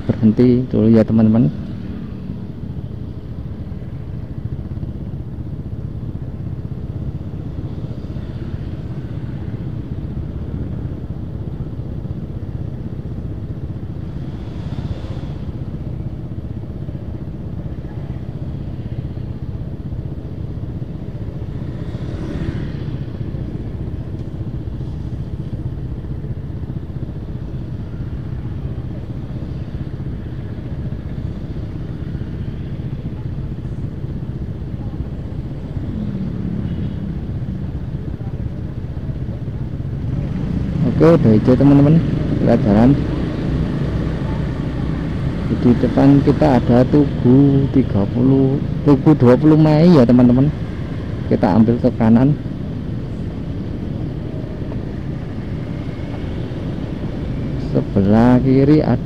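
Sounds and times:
traffic: 0.0s - 59.0s
scooter engines idling: 22.8s - 59.0s.

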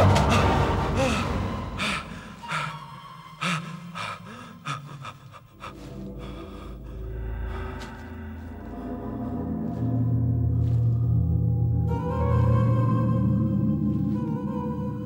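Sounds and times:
man gasping and panting: 0.2s - 9.0s
low rumbling drone: 5.5s - 15.0s.

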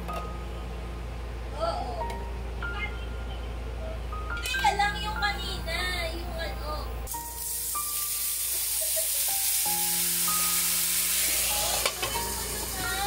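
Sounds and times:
dumplings sizzling in frying pan: 7.1s - 13.0s.

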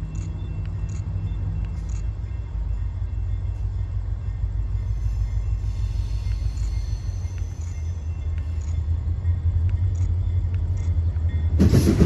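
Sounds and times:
distant diesel locomotive rumble: 0.0s - 12.0s.

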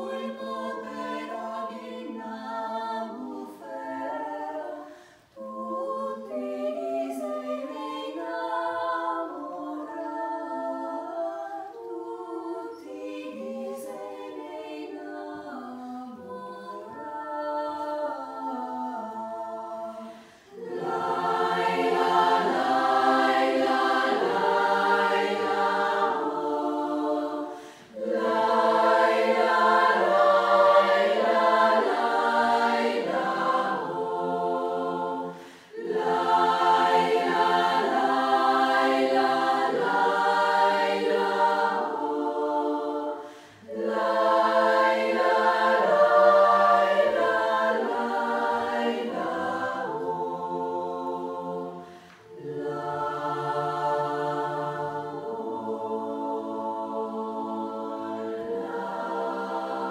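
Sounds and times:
women's choir singing: 0.0s - 59.9s.

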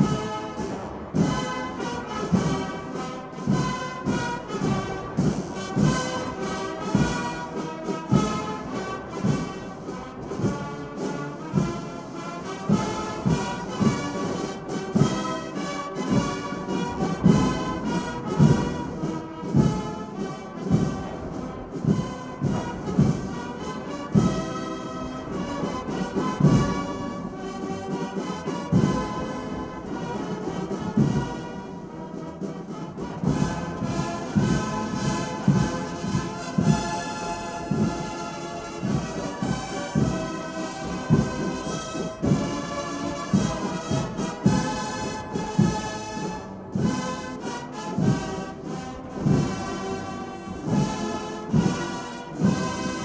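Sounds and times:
drum strokes: 0.0s - 53.0s
military brass band playing: 0.0s - 53.0s.

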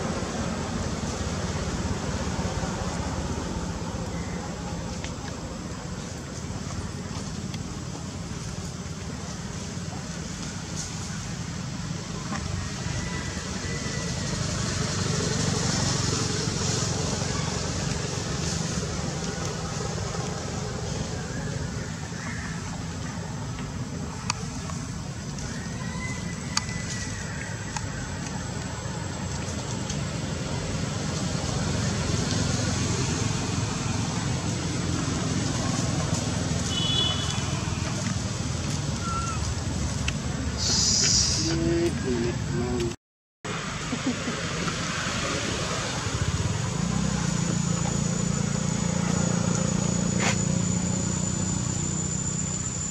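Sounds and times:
low outdoor rumble: 0.0s - 52.9s
hiss: 40.6s - 41.6s.

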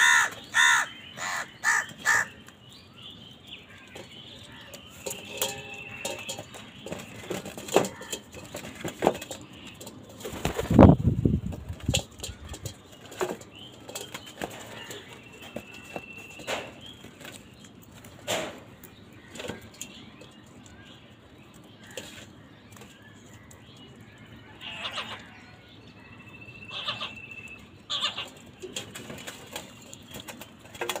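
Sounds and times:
crows cawing: 0.0s - 2.4s.

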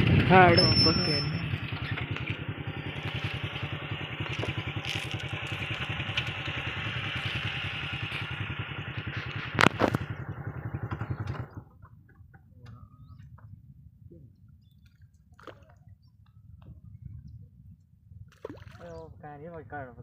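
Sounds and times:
engine puttering: 0.0s - 17.1s.

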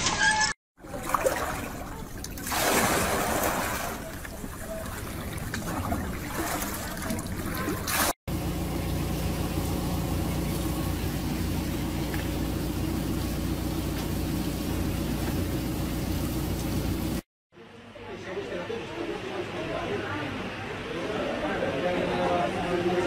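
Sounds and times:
water sloshing in a bucket: 0.8s - 14.5s
liquid gushing onto pavement: 1.3s - 8.1s
truck engine humming: 8.3s - 17.2s.

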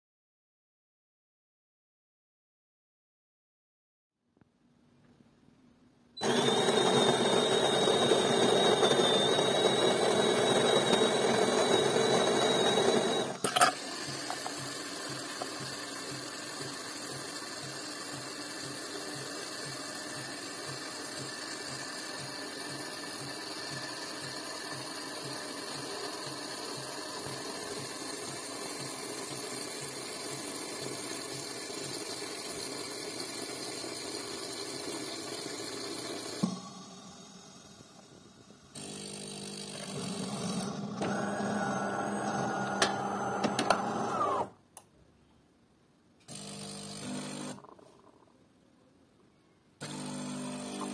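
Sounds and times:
grinder stopping click: 6.2s - 32.9s, 34.3s - 44.5s, 49.8s - 50.9s
coffee grinder whining: 6.2s - 44.6s, 46.3s - 48.2s, 49.8s - 50.9s
coffee machine humming and pulsing: 6.2s - 44.6s, 46.3s - 48.2s, 49.8s - 50.9s.

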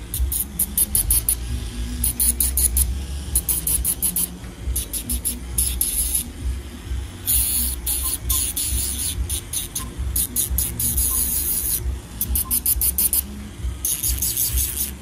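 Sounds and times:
nail drill grinding toenail: 13.8s - 15.0s.

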